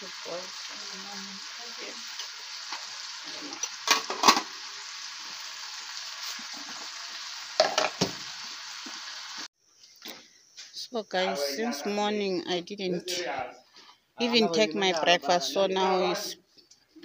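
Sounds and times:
stir-fry sizzling in a wok: 0:00.0 - 0:09.5
metal lid clanking: 0:03.5 - 0:04.5.

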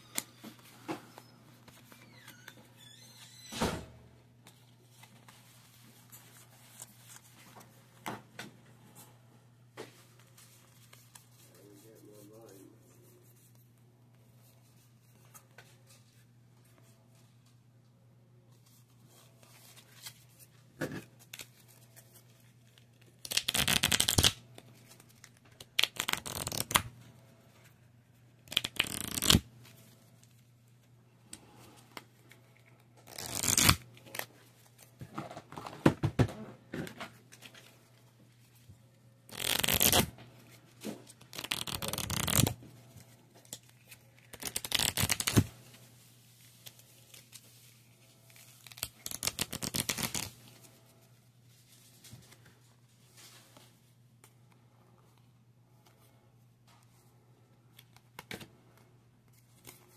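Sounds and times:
playing cards being shuffled: 0:23.1 - 0:26.9, 0:28.4 - 0:29.5, 0:32.0 - 0:34.9, 0:39.3 - 0:40.1, 0:40.8 - 0:42.6, 0:43.4 - 0:45.5, 0:48.3 - 0:50.4.

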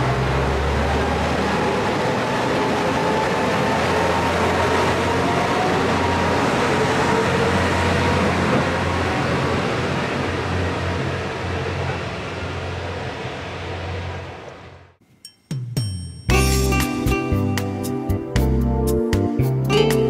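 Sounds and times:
diesel railcar engine under load: 0:00.0 - 0:15.0.

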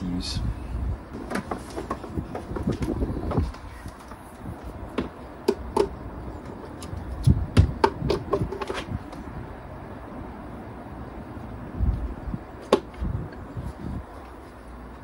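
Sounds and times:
dull bumps: 0:01.1 - 0:09.1.

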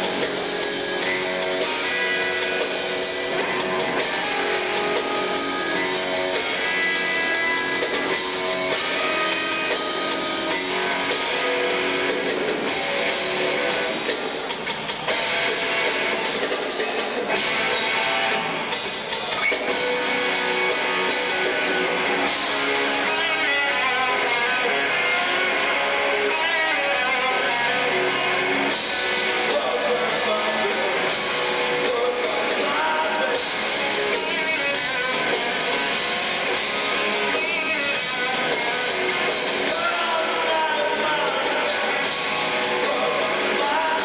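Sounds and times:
electric guitar bending notes: 0:00.0 - 0:16.6
bass guitar: 0:00.0 - 0:44.0
drums: 0:00.0 - 0:44.0.

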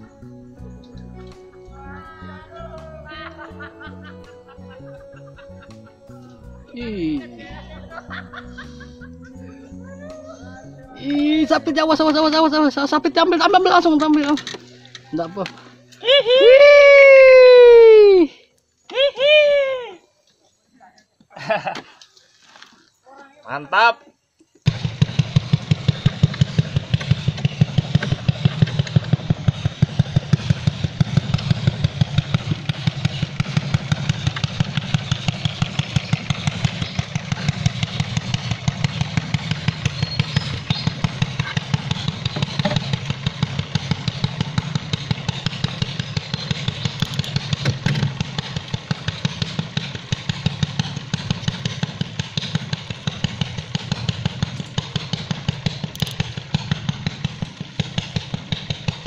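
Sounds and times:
small engine running: 0:24.6 - 0:59.0.

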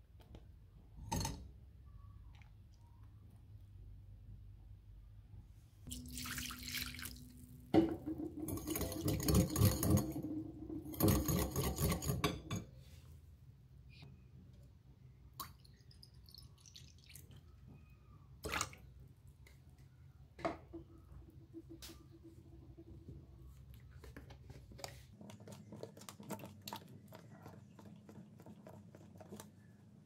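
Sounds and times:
liquid trickling from bottle: 0:05.9 - 0:07.3
whisk clinking in glass bowl: 0:08.3 - 0:12.7.

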